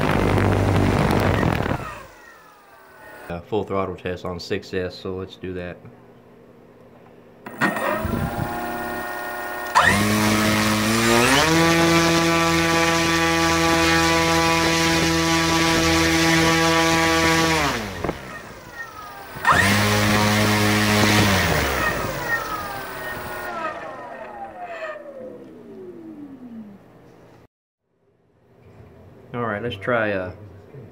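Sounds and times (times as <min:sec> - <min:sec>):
electric motor propeller whine: 0:00.0 - 0:03.3, 0:07.4 - 0:26.9.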